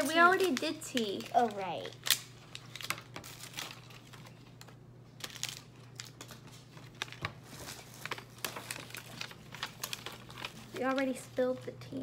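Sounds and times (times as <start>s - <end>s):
packaging wrapper crinkling: 0.0s - 12.0s.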